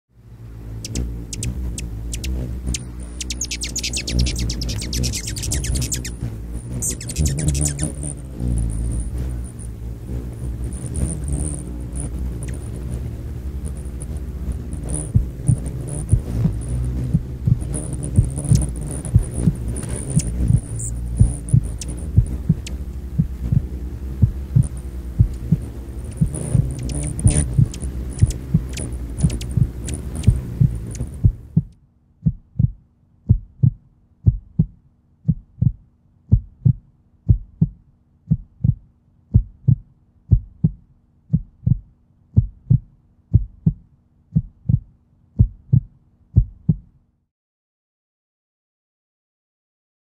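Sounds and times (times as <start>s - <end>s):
dense low rumble: 0.2s - 34.7s
faint steady hum: 0.2s - 46.5s
heartbeat double thump: 14.9s - 46.9s.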